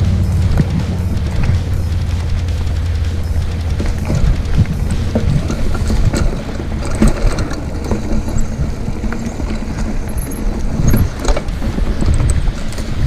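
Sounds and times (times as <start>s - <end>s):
bike knocks and rattles: 0.0s - 13.0s
wind and tyre rumble: 0.0s - 13.0s.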